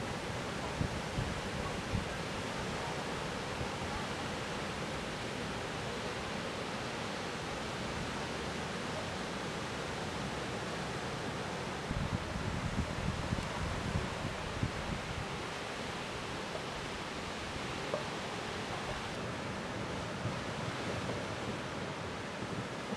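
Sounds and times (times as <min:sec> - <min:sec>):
wind buffeting microphone: 0:00.7 - 0:02.2, 0:11.8 - 0:15.5.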